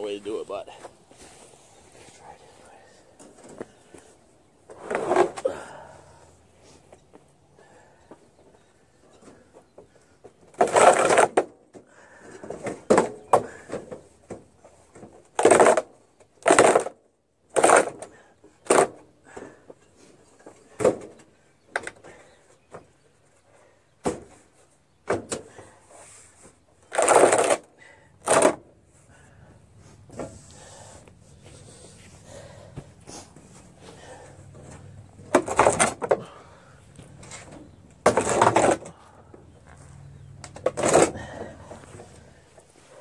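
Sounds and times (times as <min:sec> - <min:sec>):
generator scraping across concrete: 0:04.7 - 0:05.9, 0:37.0 - 0:43.0.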